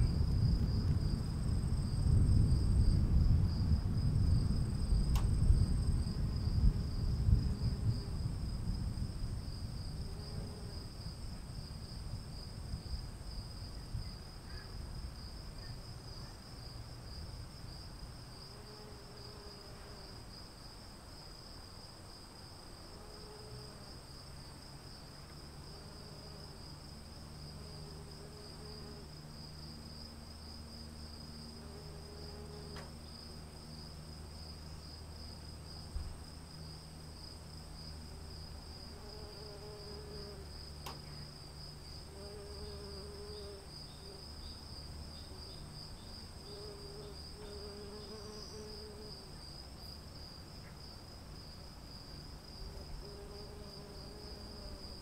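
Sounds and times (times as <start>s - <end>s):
low steady rumble: 0.0s - 18.3s
high pulsing insect chorus: 0.0s - 55.0s.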